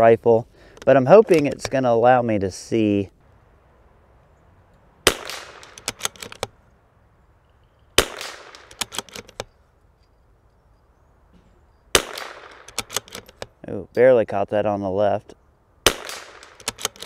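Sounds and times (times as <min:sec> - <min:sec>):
rifle shots: 0:05.0 - 0:06.4, 0:08.0 - 0:09.1, 0:11.9 - 0:13.2, 0:15.8 - 0:17.0.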